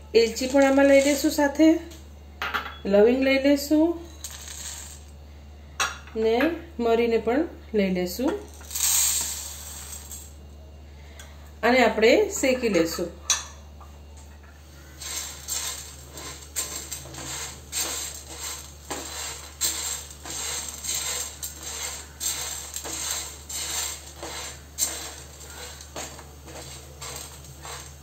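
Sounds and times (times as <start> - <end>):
low steady hum: 0.0 - 28.0
spices rattling in dry pan: 0.3 - 1.5, 4.2 - 5.0, 8.5 - 10.3, 14.8 - 28.0.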